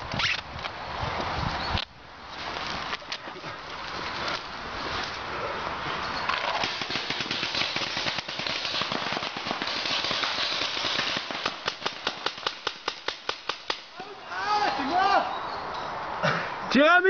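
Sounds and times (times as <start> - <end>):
paintball markers firing: 6.4 - 13.9.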